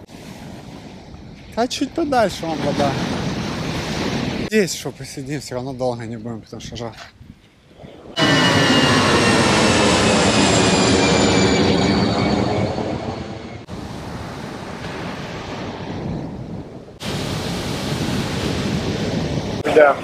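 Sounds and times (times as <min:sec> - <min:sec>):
jet airliner passing overhead: 0:08.1 - 0:14.2.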